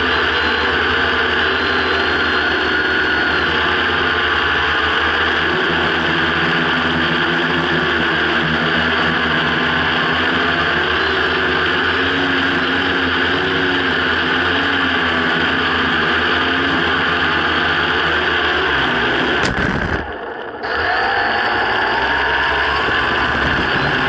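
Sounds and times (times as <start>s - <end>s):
quadcopter motors buzzing: 0.0s - 24.0s.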